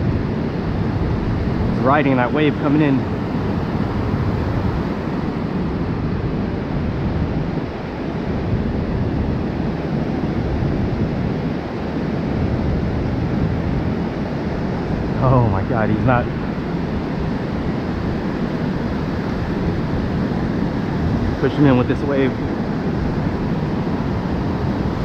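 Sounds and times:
ocean surf on beach: 0:00.0 - 0:25.0
wind buffeting microphone: 0:00.0 - 0:25.0.

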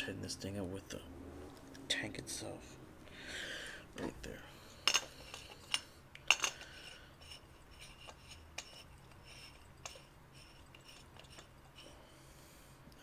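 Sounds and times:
metal fittings clinking: 0:04.8 - 0:11.9.

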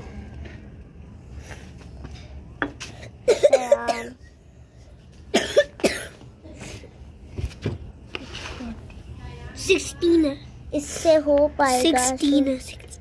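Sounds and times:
person coughing: 0:03.2 - 0:04.2, 0:05.3 - 0:06.2.

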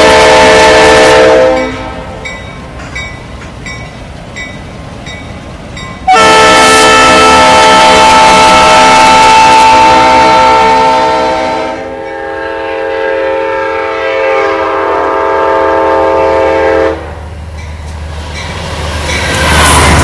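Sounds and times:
locomotive horn chord: 0:00.0 - 0:02.3, 0:06.1 - 0:17.2
train rumble: 0:00.0 - 0:20.0
train wheel clatter: 0:01.6 - 0:06.1, 0:17.4 - 0:20.0.

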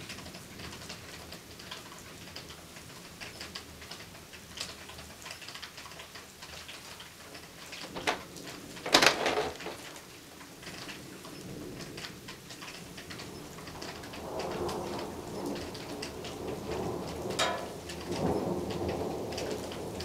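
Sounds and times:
rain pattering and dripping: 0:00.0 - 0:20.0
thunder cracks: 0:13.3 - 0:20.0.

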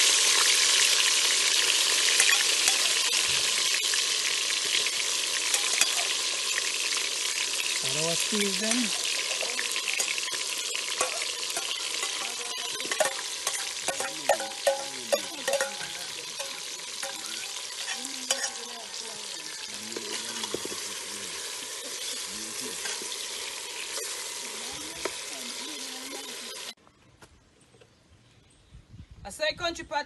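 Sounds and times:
vegetables sizzling in hot oil: 0:00.0 - 0:26.8
metal spoon clinking against pot: 0:02.2 - 0:03.0, 0:09.3 - 0:18.8.

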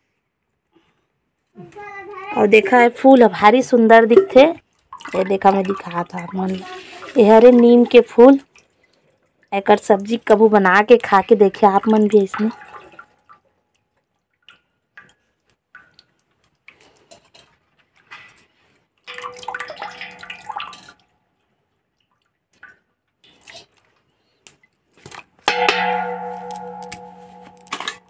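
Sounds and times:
water dripping into steel bowl: 0:02.6 - 0:16.8, 0:19.0 - 0:21.1, 0:25.4 - 0:28.0
steel vessel clanking: 0:19.1 - 0:20.9, 0:25.5 - 0:28.0.

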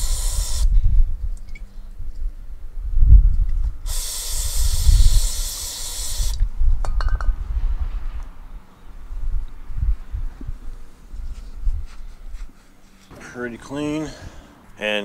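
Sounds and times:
aerosol spray hissing: 0:00.0 - 0:00.7, 0:03.9 - 0:06.4.

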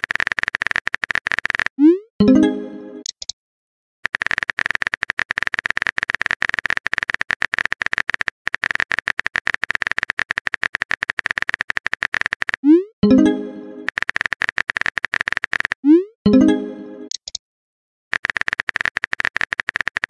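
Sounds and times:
phone keyboard typing clicks: 0:00.0 - 0:01.8, 0:04.1 - 0:12.7, 0:13.8 - 0:15.8, 0:17.1 - 0:17.4, 0:18.2 - 0:20.0.

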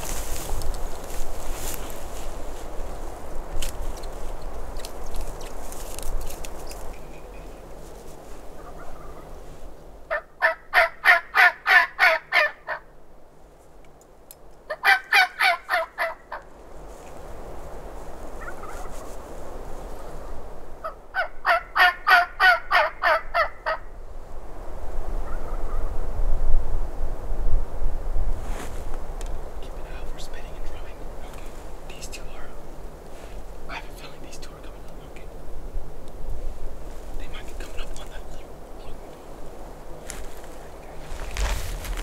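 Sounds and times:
turkey gobbling: 0:08.6 - 0:09.3, 0:10.1 - 0:12.9, 0:14.7 - 0:16.4, 0:18.4 - 0:18.9, 0:20.8 - 0:23.9.

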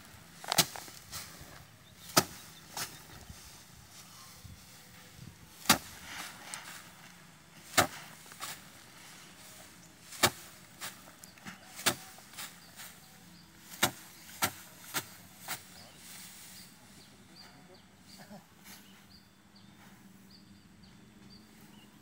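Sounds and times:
rice stalks whacking wooden rack: 0:00.3 - 0:04.0, 0:04.6 - 0:16.6.

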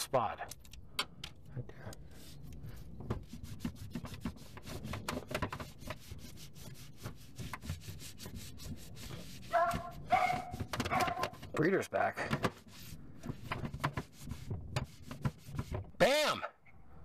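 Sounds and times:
cloth rubbing on plastic: 0:02.2 - 0:11.6, 0:12.5 - 0:16.1.

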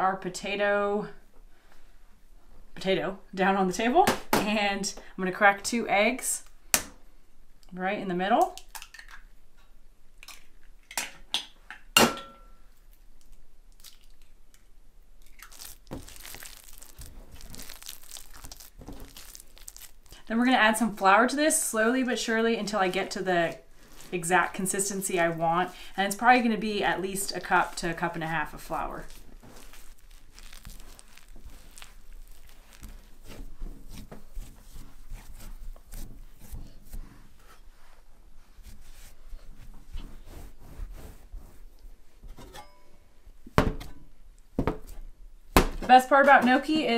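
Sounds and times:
hands squishing dough: 0:13.0 - 0:42.0.

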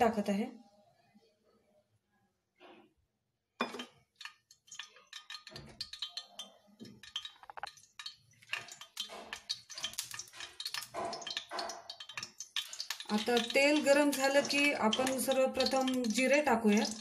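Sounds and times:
oil crackling and popping: 0:03.6 - 0:17.0.

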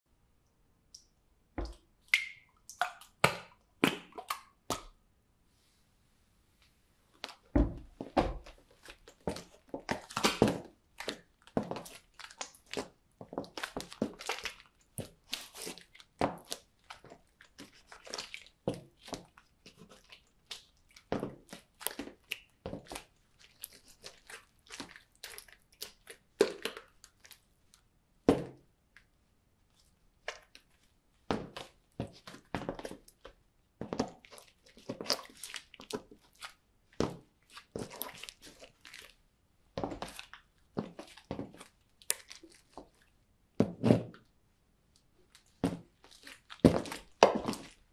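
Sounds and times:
wet slime squelches: 0:00.8 - 0:05.0, 0:06.6 - 0:47.9
heels tapping on hard floor: 0:07.6 - 0:08.6.

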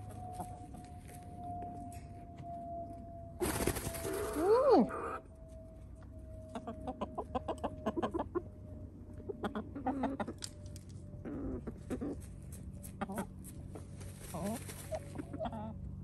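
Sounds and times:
hens clucking softly: 0:06.5 - 0:08.4, 0:09.2 - 0:10.6, 0:11.2 - 0:15.8.

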